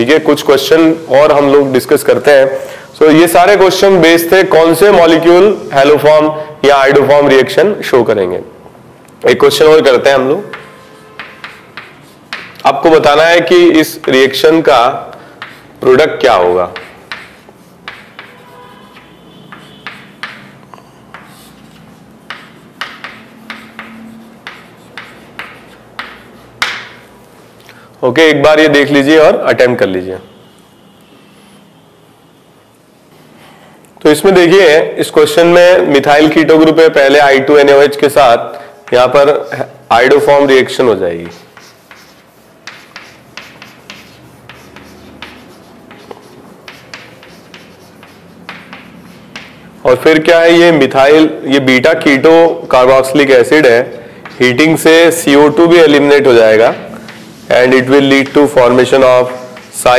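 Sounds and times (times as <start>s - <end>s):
writing strokes scratching on a board: 10.3s - 27.1s, 41.0s - 50.6s, 52.0s - 59.9s
chalk tapping on a board: 10.4s - 14.4s, 15.1s - 15.8s, 16.4s - 27.1s, 38.8s - 39.7s, 41.1s - 50.6s, 52.4s - 55.1s, 56.6s - 59.9s.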